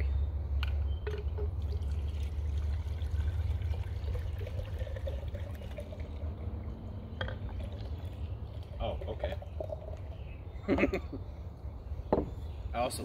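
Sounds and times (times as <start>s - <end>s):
liquid pouring into a horn: 1.1s - 10.3s.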